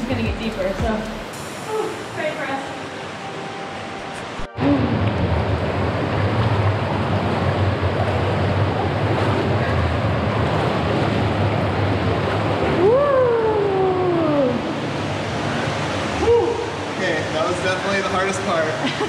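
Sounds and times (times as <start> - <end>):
cave stream rushing: 0.0 - 19.0
people wading through water: 4.4 - 19.0
person crying out: 16.2 - 16.8.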